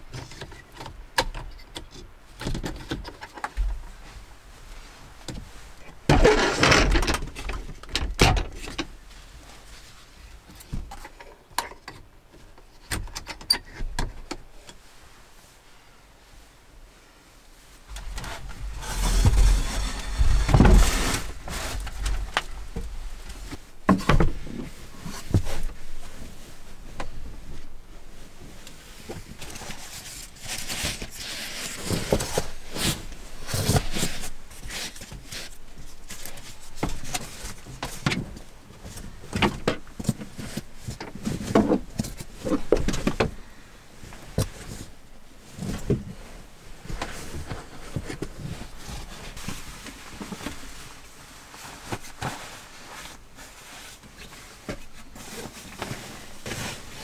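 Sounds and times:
foam mat and sleeping bag rustling: 15.0s - 39.4s, 40.0s - 57.0s.

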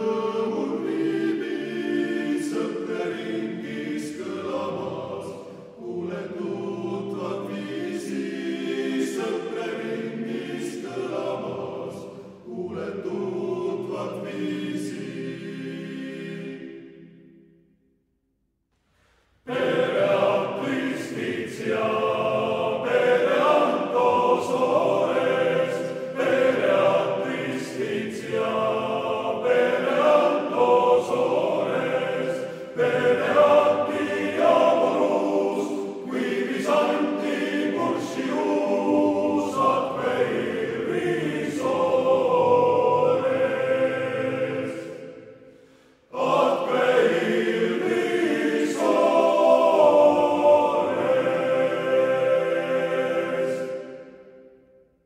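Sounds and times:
men's choir singing: 0.0s - 17.2s, 19.5s - 54.5s.

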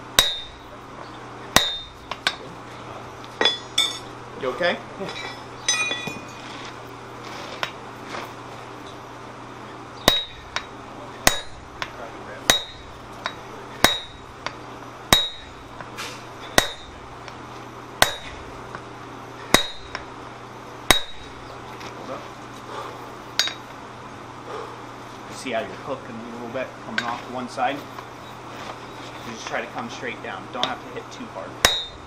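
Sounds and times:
sledgehammer clanging on hot steel: 0.1s - 0.7s, 1.5s - 2.5s, 3.4s - 4.1s, 5.1s - 6.6s, 10.0s - 17.4s, 18.0s - 18.8s, 19.4s - 20.1s, 20.9s - 21.6s, 23.4s - 23.7s, 29.4s - 30.9s, 31.6s - 32.0s.

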